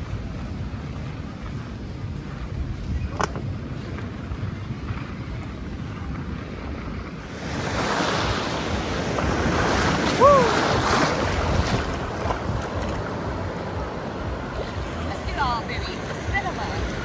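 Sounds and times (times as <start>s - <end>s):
ocean surf breaking on beach: 0.0s - 17.0s
wind buffeting microphone: 0.0s - 17.0s
short high rising and falling cry: 10.0s - 10.8s.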